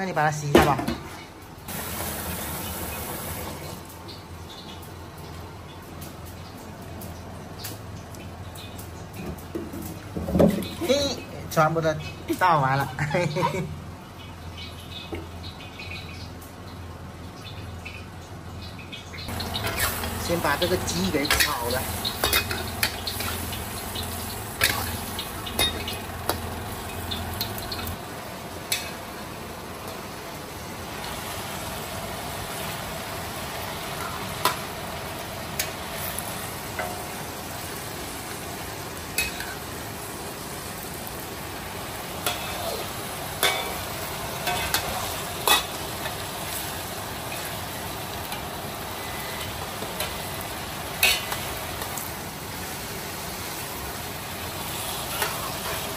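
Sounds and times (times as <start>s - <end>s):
food sizzling in a wok: 1.6s - 55.9s
metal spatula scraping a wok: 19.4s - 20.2s.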